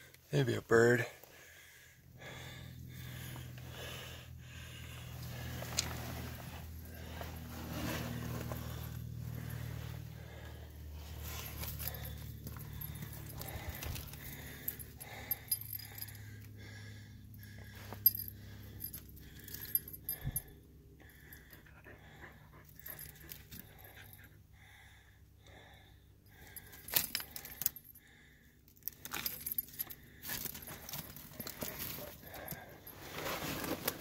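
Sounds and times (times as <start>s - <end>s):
light metallic jingle: 11.0s - 16.6s, 17.2s - 20.6s, 26.4s - 28.0s, 28.8s - 34.0s.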